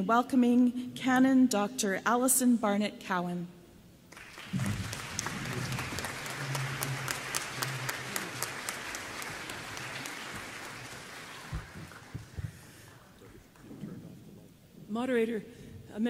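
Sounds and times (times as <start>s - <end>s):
audience applauding: 4.1s - 13.8s.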